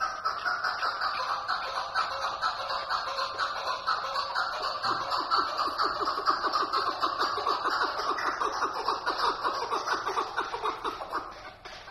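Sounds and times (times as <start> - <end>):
partridge chuck calls: 0.0 - 11.9.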